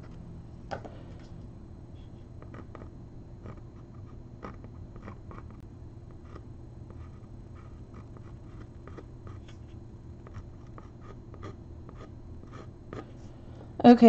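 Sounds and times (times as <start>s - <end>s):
faint low hum: 0.0s - 14.0s
pencil scratching on panel: 2.4s - 13.2s.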